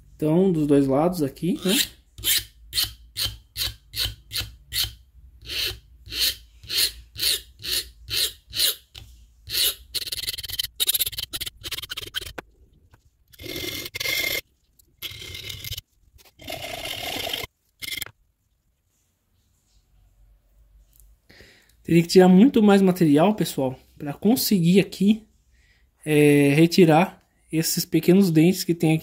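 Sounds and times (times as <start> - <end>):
metal file rasping on steel blade: 1.6 - 8.9, 9.5 - 12.4.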